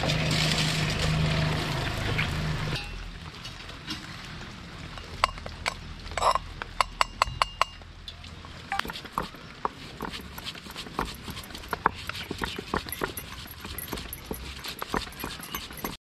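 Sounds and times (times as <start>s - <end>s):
hard objects clicking and clinking: 10.0s - 16.0s.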